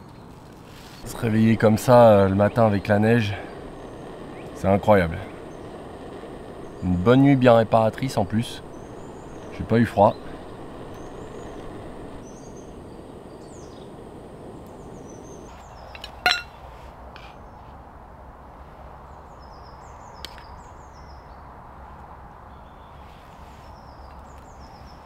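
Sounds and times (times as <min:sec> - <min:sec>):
small birds chirping: 0:00.0 - 0:16.4, 0:19.0 - 0:21.5, 0:22.5 - 0:25.0
steady outdoor hush: 0:00.0 - 0:25.0
metallic clink of camp mug: 0:16.2 - 0:16.5.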